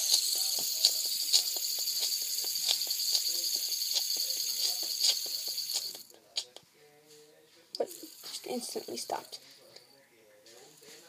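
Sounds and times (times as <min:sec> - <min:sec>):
fidget spinner whirring: 0:00.0 - 0:06.1.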